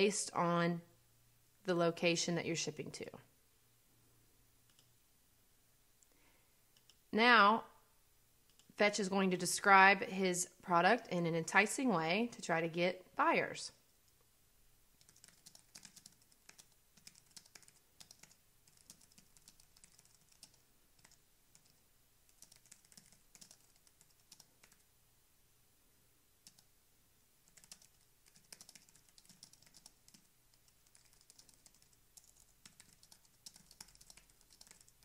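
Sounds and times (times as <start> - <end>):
faint keyboard typing: 4.6 - 5.0, 6.0 - 7.1, 8.4 - 8.8, 15.0 - 24.9, 26.4 - 26.7, 27.4 - 35.0.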